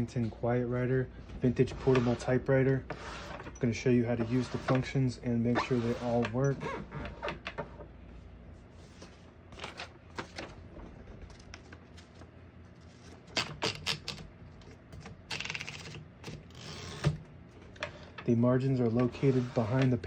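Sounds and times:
typewriter carriage clicks and clatter: 13.3 - 14.2, 15.3 - 17.1.

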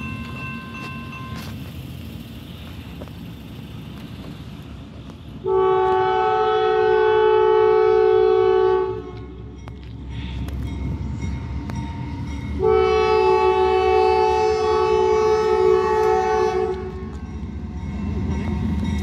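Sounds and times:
train rumbling: 0.0 - 19.0
locomotive air horn: 5.4 - 9.5, 12.6 - 17.2.

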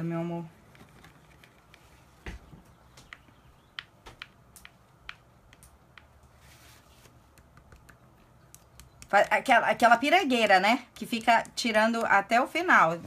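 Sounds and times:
soft rustle: 0.3 - 2.7, 6.2 - 7.3
skewer tapping plastic palette: 3.0 - 6.3, 7.3 - 9.5.

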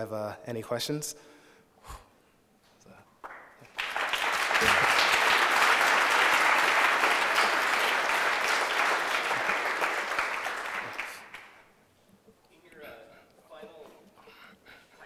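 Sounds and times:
audience clapping: 3.2 - 11.8.

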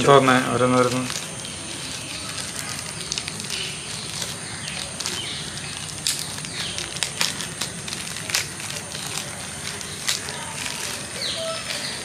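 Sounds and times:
plastic packaging crinkling: 0.0 - 12.0.

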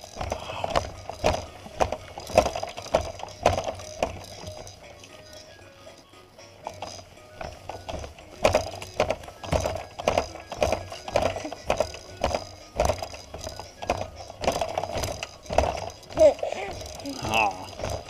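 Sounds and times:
baby bouncer rattling and knocking: 0.0 - 18.0.

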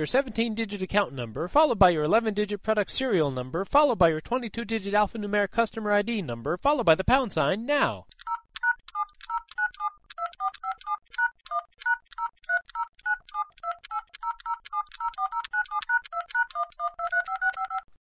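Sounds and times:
phone keypad beeps: 8.2 - 18.0.

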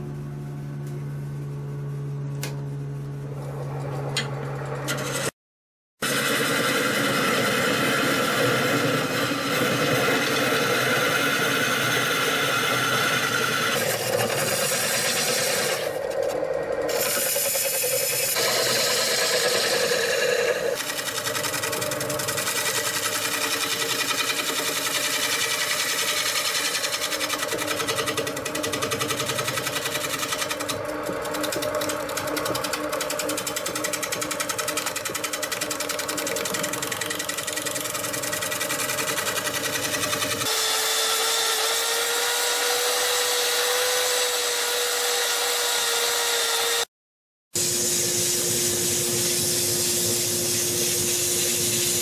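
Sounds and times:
gouge cutting wood shavings: 6.0 - 46.8
wood lathe running: 6.0 - 46.9.

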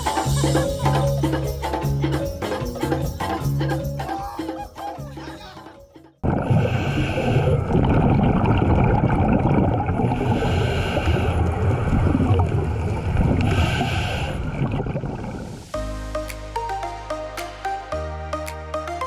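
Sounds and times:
scuba regulator bubbling rumble: 6.2 - 15.7.

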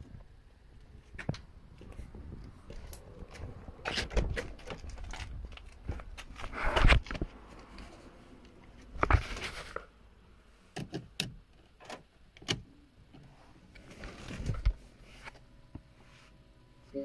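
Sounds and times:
rustling: 13.2 - 16.4.

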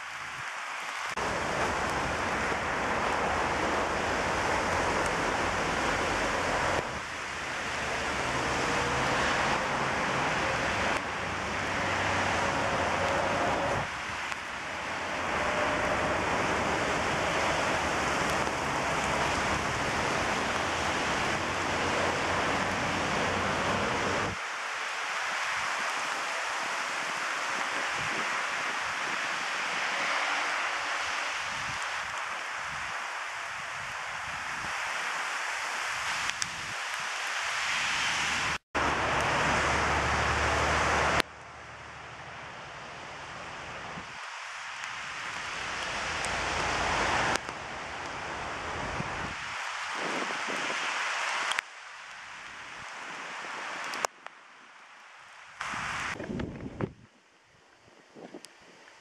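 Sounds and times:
gusty wind: 0.0 - 59.0
rain hissing: 0.0 - 59.0
wind buffeting the microphone: 27.0 - 29.5, 36.0 - 37.0, 48.1 - 51.0, 55.6 - 59.0.

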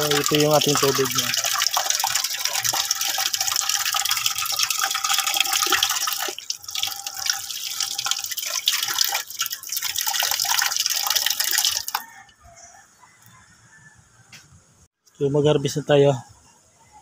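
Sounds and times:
tap water splashing into metal basin: 0.0 - 12.0.

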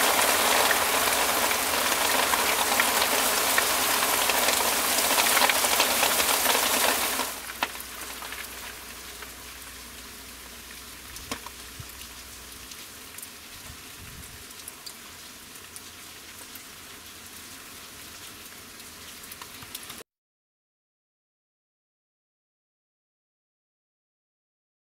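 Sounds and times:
rain hissing: 0.0 - 20.0
dripping water ticks: 10.5 - 13.6, 14.4 - 17.2, 18.2 - 20.0.

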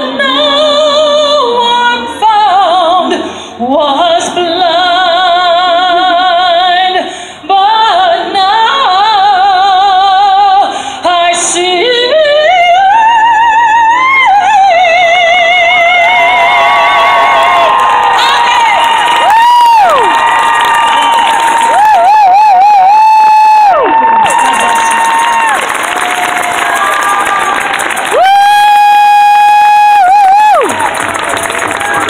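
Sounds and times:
woman singing operatically: 0.0 - 16.6
crowd cheering: 16.0 - 32.0.

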